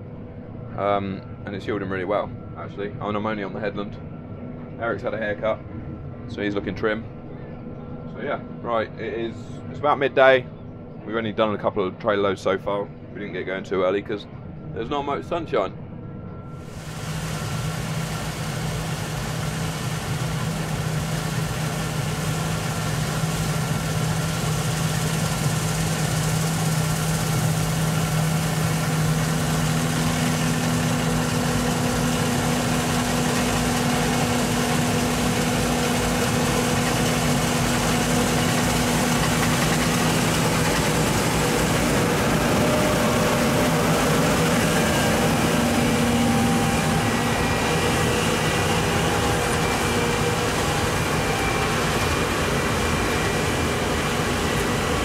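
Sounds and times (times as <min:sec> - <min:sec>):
combine harvester drone: 0:16.5 - 0:55.0
higher machine tone: 0:16.5 - 0:55.0.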